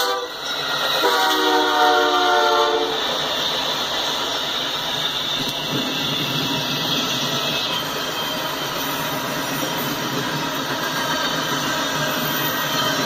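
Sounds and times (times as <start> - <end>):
locomotive air horn: 0.0 - 0.4, 1.0 - 3.0
train clattering over rails: 0.0 - 13.0.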